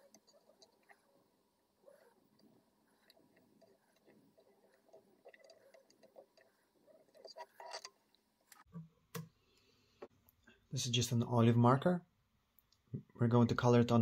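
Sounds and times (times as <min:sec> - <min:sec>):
thread ticking and rustling: 0:00.0 - 0:08.8.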